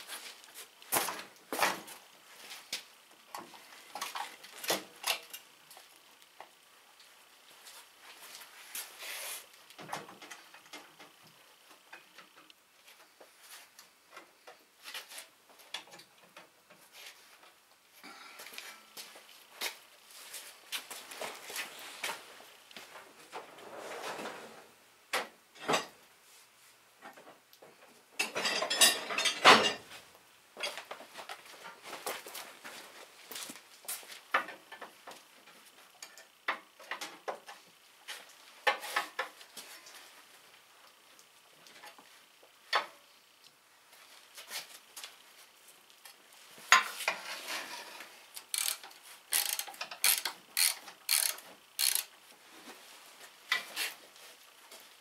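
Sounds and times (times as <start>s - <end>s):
ratchet wrench clicks: 48.4s - 52.1s.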